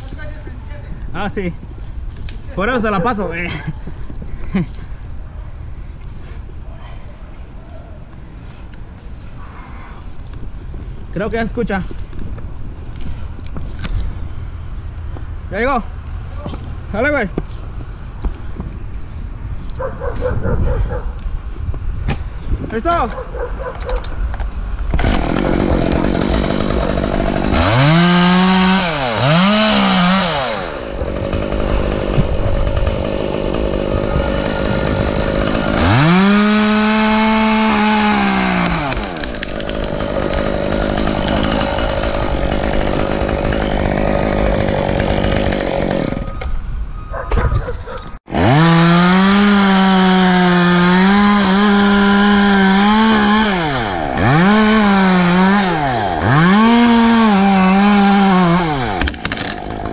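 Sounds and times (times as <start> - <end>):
chainsaw revving: 25.0 - 46.4, 48.3 - 59.9.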